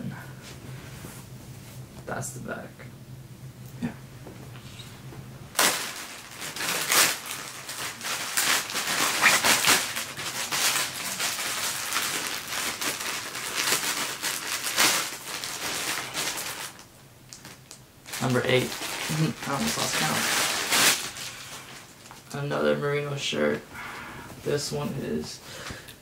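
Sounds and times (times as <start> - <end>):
plastic packaging crinkling: 5.5 - 22.4.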